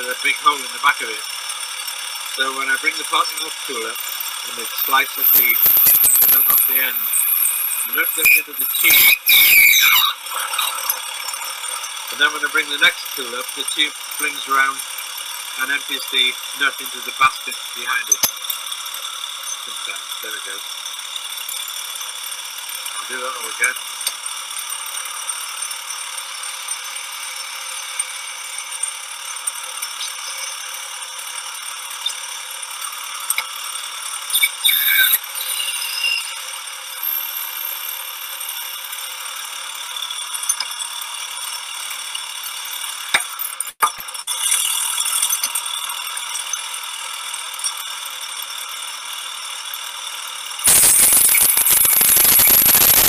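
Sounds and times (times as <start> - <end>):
lathe running and cutting: 0.0 - 24.0, 24.6 - 41.5.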